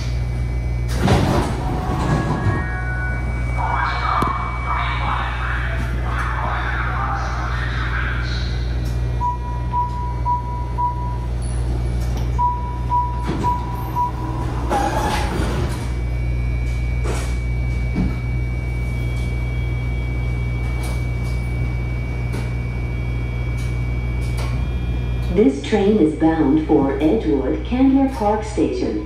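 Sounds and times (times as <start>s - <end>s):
rail car low hum: 0.0s - 29.0s
steady high whine: 0.0s - 29.0s
door warning beeps: 8.8s - 29.0s.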